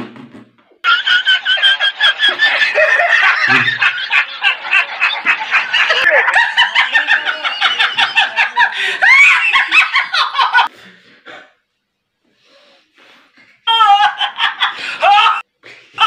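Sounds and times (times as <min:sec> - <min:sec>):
person laughing hard: 0:00.8 - 0:10.7, 0:13.7 - 0:15.4.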